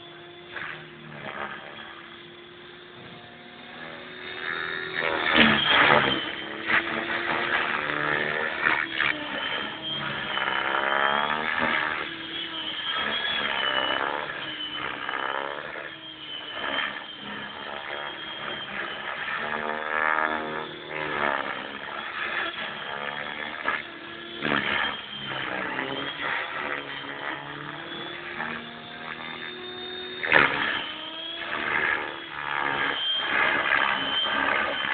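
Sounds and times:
model helicopter rotor whine: 0.0s - 34.9s.

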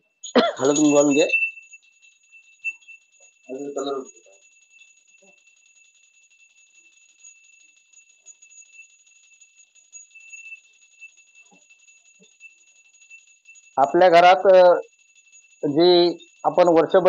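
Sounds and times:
small bell ringing rapidly: 0.0s - 17.0s
quiet voices: 0.4s - 1.4s, 3.5s - 4.1s, 15.6s - 17.0s.

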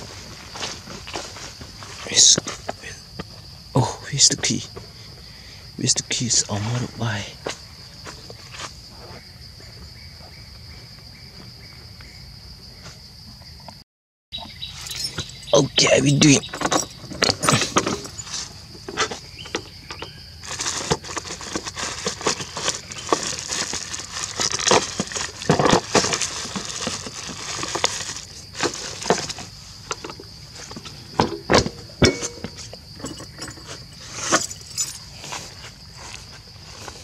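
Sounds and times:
metallic clicks and clinks: 14.8s - 15.6s
plastic rustling: 20.4s - 31.4s.

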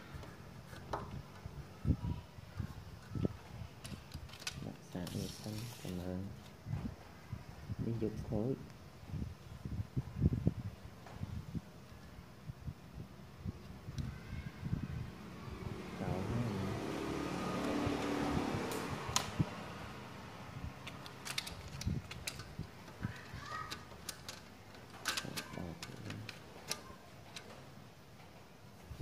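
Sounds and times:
sharp clicks and knocks: 20.8s - 28.3s.

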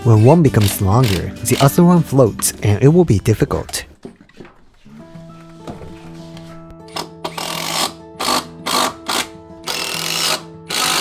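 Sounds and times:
background music: 0.0s - 11.0s
cordless power driver bursts: 7.0s - 11.0s.

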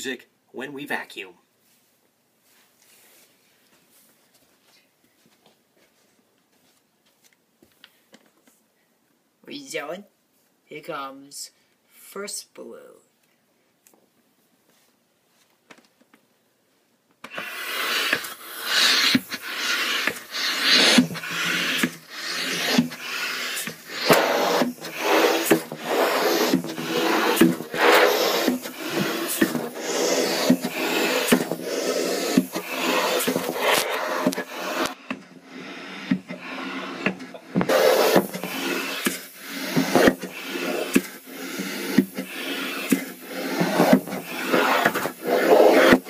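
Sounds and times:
balloon rubbing on microphone: 17.3s - 46.0s.

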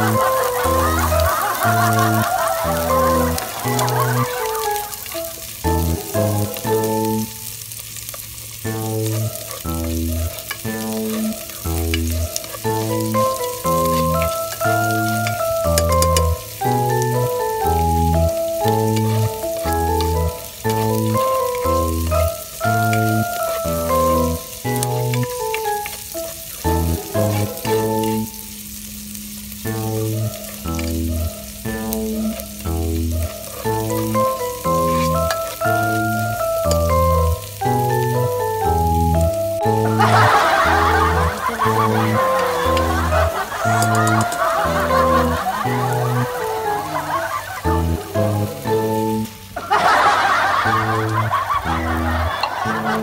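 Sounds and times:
background music with bass line: 0.0s - 4.9s, 5.6s - 7.3s, 8.6s - 49.4s, 50.5s - 53.0s
onion frying in oil: 0.0s - 53.0s
spatula stirring in pot: 9.2s - 14.6s
spatula scraping pot: 27.0s - 28.2s.

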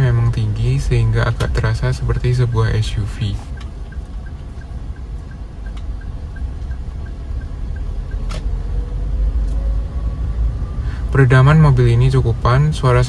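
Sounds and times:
car engine low rumble: 0.0s - 13.0s
light regular ticking: 1.4s - 8.3s.

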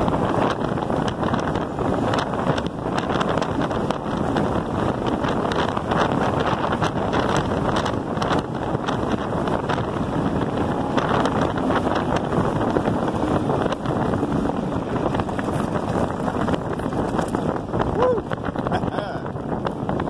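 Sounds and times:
wind buffeting microphone: 0.0s - 20.0s
tyres rolling on gravel: 10.9s - 17.7s
stones and bike rattling: 10.9s - 20.0s.

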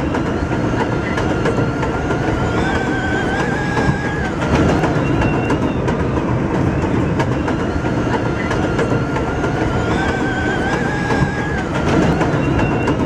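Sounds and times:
train rumble: 0.0s - 13.0s
wheels clacking over rail joints: 0.0s - 13.0s.

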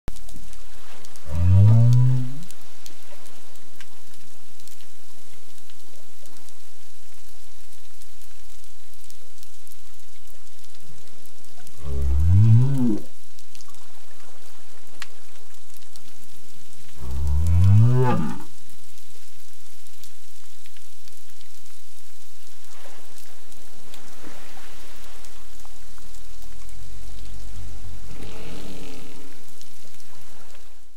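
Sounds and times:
underwater hiss with crackling: 0.1s - 30.9s
low hum: 1.0s - 3.3s.

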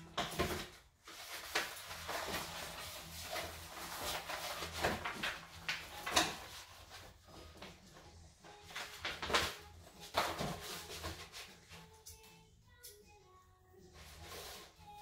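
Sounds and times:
contact paper rubbed and scraped: 1.0s - 7.3s, 8.7s - 11.8s.

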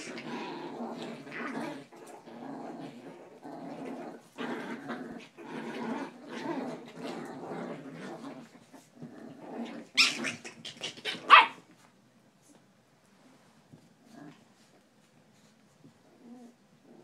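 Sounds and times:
small dogs growling: 0.0s - 11.6s, 14.0s - 14.7s, 16.0s - 17.0s.

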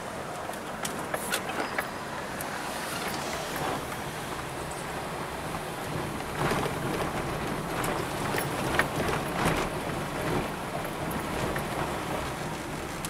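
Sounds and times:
car engine and tyre rumble: 0.0s - 13.0s
car knocks and rattles: 5.5s - 12.5s.

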